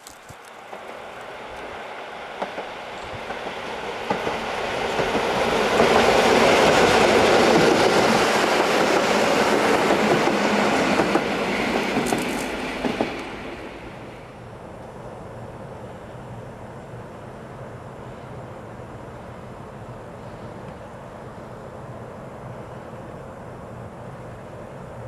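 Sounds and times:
wheels clacking over rail joints: 0:00.0 - 0:13.8
electric train passing: 0:00.4 - 0:25.0.

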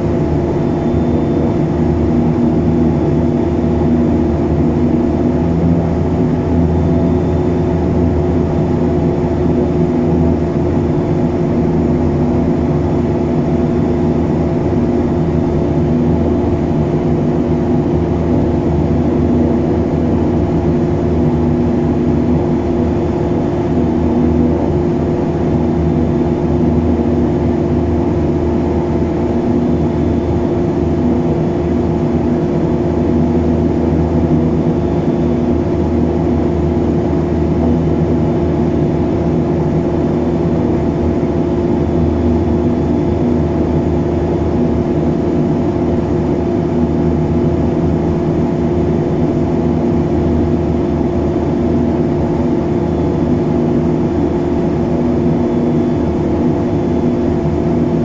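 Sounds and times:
turboprop engines droning: 0:00.0 - 0:58.0.

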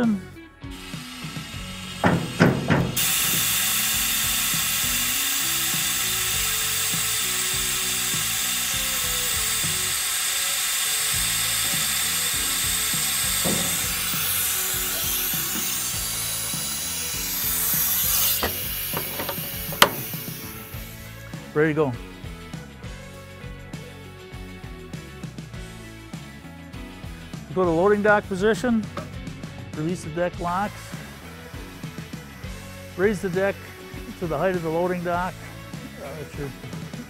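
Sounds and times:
compressed air hissing: 0:00.7 - 0:21.3, 0:30.7 - 0:32.9.

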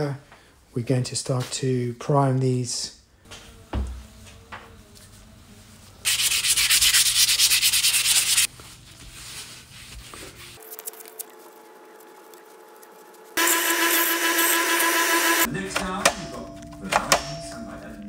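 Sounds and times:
scratchy sanding: 0:06.1 - 0:08.5.

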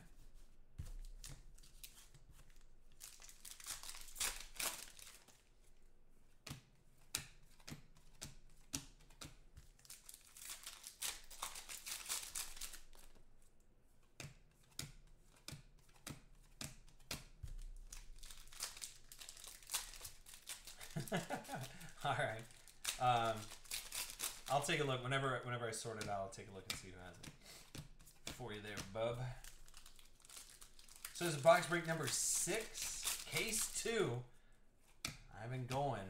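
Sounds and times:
foil wrappers crinkling: 0:01.0 - 0:05.5, 0:09.7 - 0:13.1, 0:17.5 - 0:25.0, 0:27.5 - 0:34.1
foil wrapper ripping: 0:03.0 - 0:05.3, 0:09.8 - 0:13.0, 0:17.9 - 0:24.8, 0:29.4 - 0:33.9.

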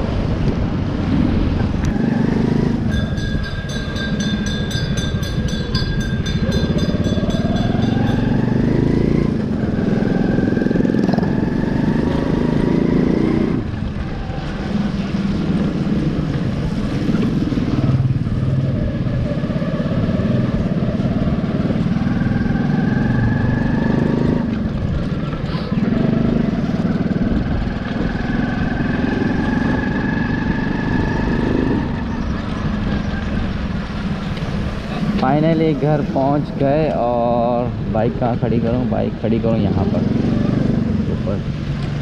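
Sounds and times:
small motorcycle engine revving: 0:06.6 - 0:13.7, 0:16.8 - 0:33.3, 0:39.5 - 0:41.4.

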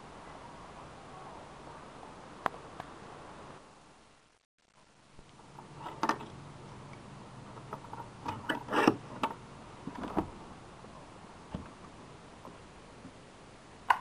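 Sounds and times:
door bolt scraping slide: 0:08.3 - 0:09.4.

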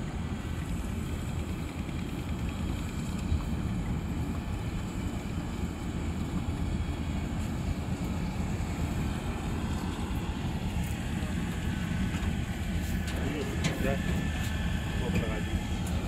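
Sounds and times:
combine harvester rumbling: 0:00.0 - 0:16.0.

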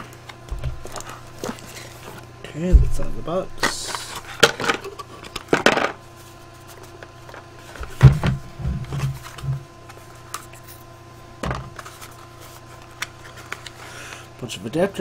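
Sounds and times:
dull knocks: 0:00.5 - 0:01.0, 0:02.7 - 0:03.3
cardboard packaging rustling: 0:00.5 - 0:02.2.

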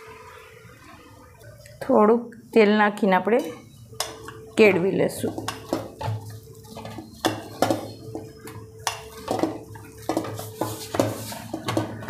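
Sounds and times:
metal bowl knocking on counter: 0:05.2 - 0:12.0.

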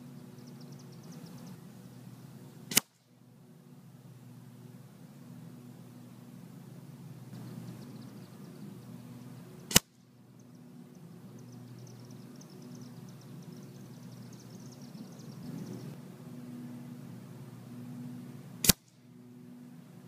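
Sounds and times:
faint high chirping: 0:00.0 - 0:02.1, 0:10.3 - 0:16.0
low steady hum: 0:00.0 - 0:20.0
air rifle shot: 0:02.7 - 0:03.0, 0:09.7 - 0:10.0, 0:18.6 - 0:19.0.

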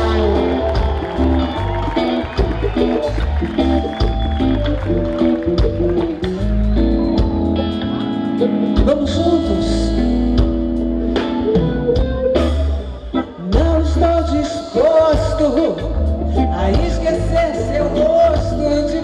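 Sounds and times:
live band playing: 0:00.0 - 0:19.0
woman singing into microphone: 0:13.5 - 0:19.0.

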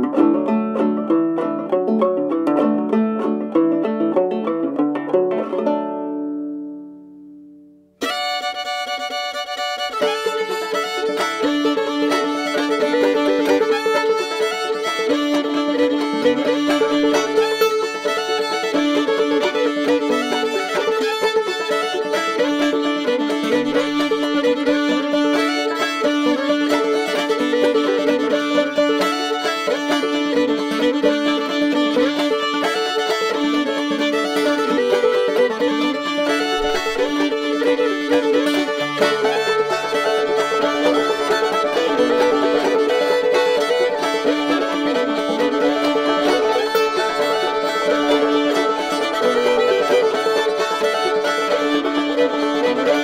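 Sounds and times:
banjo: 0:00.0 - 0:53.0
fiddle tune: 0:00.0 - 0:53.0.

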